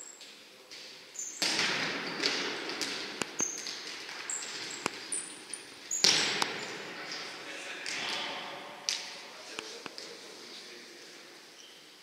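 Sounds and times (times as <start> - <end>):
shoes squeaking on floor: 1.1 - 7.4, 11.5 - 12.0
ball kicked and bouncing: 1.4 - 5.2.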